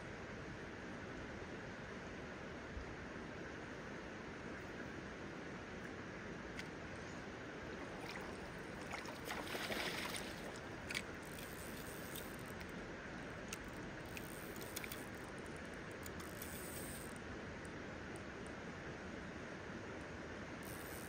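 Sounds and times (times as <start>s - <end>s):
river flowing over stones: 7.6s - 16.0s
faint clicks: 10.5s - 12.8s, 13.4s - 17.2s.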